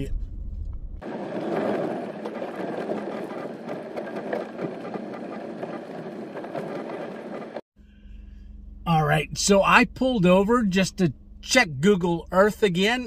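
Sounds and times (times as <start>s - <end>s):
tyres rumbling on dirt track: 1.0s - 7.6s.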